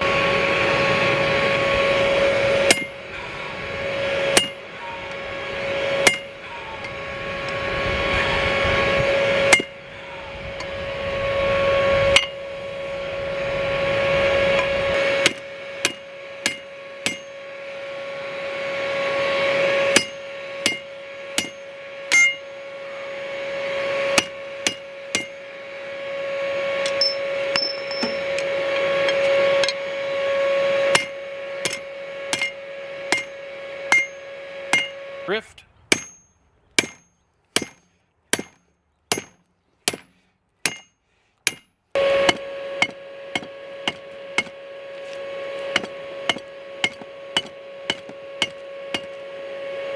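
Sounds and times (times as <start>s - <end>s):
steady hum: 0.0s - 49.9s
hammer striking metal punch: 2.7s - 3.0s, 4.3s - 4.6s, 6.0s - 6.4s, 9.5s - 9.8s, 15.2s - 17.4s, 20.0s - 22.5s, 24.2s - 25.4s, 26.8s - 29.8s, 30.9s - 35.0s, 35.9s - 41.7s, 42.3s - 44.6s, 45.7s - 49.1s.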